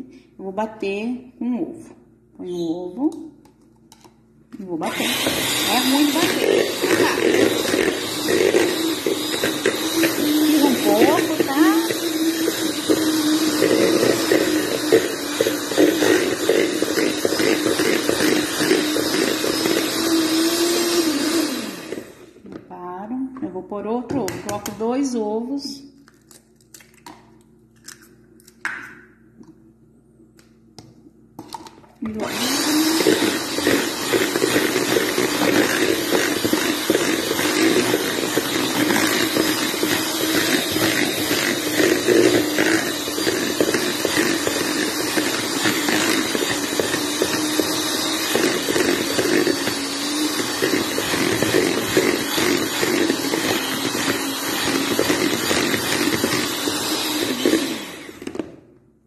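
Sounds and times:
electric hand mixer churning dough: 4.6 - 22.6, 24.2 - 25.2, 31.5 - 58.7.

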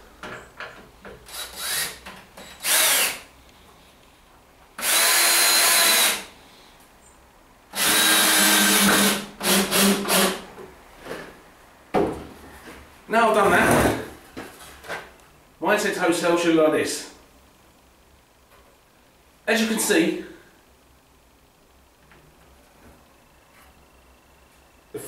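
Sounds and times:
cordless drill driving screws: 1.3 - 3.3, 4.8 - 6.3, 7.7 - 10.4.

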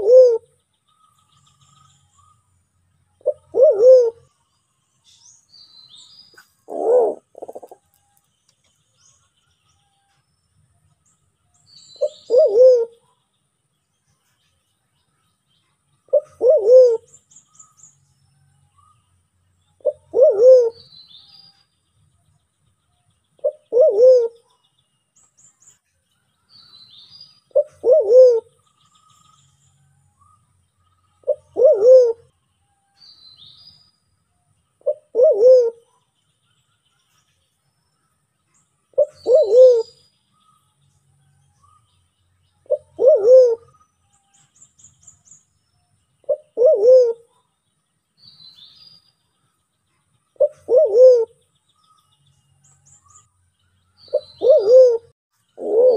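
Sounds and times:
pigeon calling: 0.0 - 0.4, 3.2 - 4.2, 6.7 - 7.8, 12.0 - 13.0, 16.1 - 17.1, 19.8 - 20.8, 23.4 - 24.4, 27.5 - 28.5, 31.2 - 32.3, 34.8 - 35.8, 39.0 - 40.0, 42.7 - 43.7, 46.3 - 47.2, 50.4 - 51.3, 54.1 - 55.9
small birds chirping: 0.0 - 55.9.

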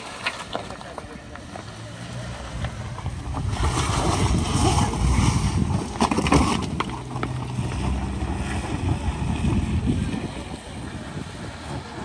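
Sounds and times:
stones clicking under tyres: 0.0 - 9.8
car engine humming: 0.0 - 12.0
wind buffeting microphone: 2.5 - 12.0.

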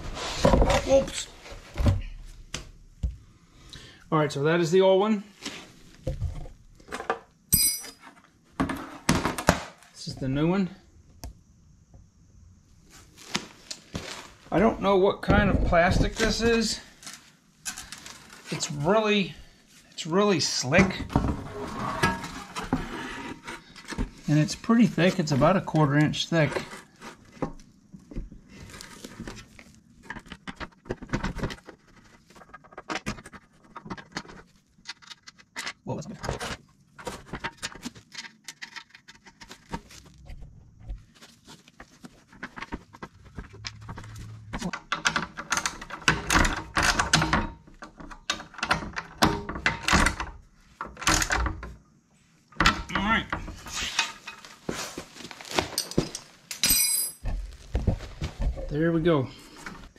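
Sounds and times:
wrench clinking on metal bolts: 7.5 - 8.0, 55.8 - 57.2.

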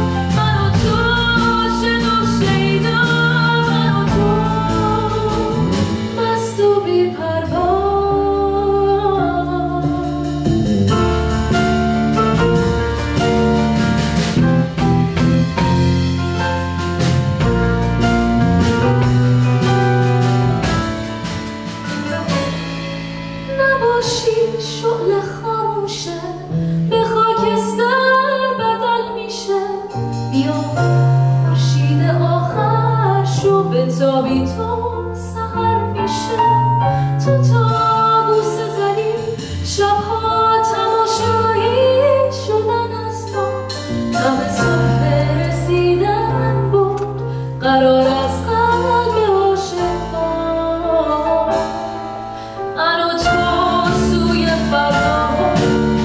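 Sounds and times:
woman singing: 0.0 - 10.7, 21.9 - 22.7, 23.4 - 56.0
live band playing: 0.0 - 56.0.

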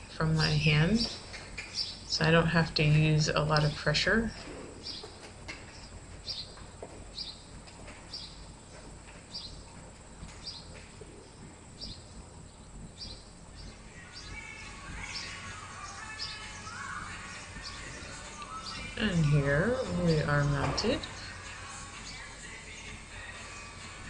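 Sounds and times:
small bird chirping: 1.0 - 2.2, 4.8 - 7.5, 8.1 - 8.5, 9.3 - 9.7, 10.4 - 21.3.

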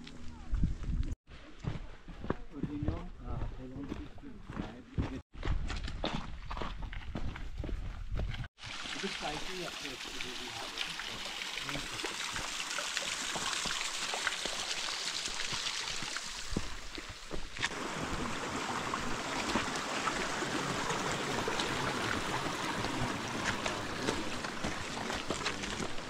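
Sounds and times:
running water rushing: 8.6 - 26.0.

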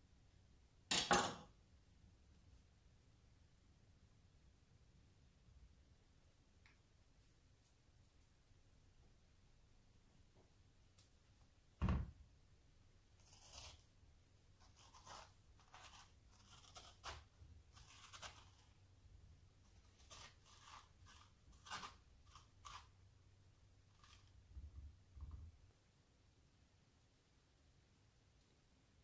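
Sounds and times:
thump: 11.8 - 12.2
metal spoon scraping squash: 13.2 - 18.8, 19.6 - 23.0.

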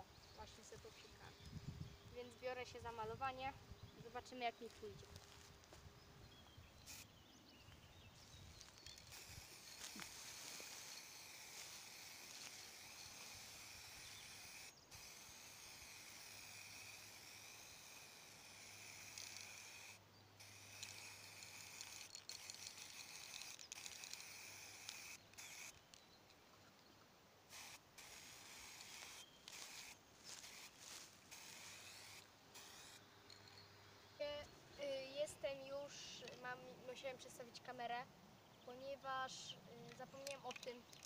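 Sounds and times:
spray can hissing: 9.1 - 25.7, 27.5 - 33.0.

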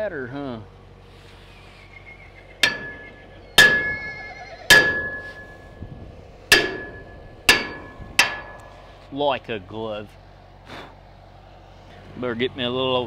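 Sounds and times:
hammer striking steel pipe: 2.6 - 3.9, 4.7 - 5.7, 6.5 - 8.9.

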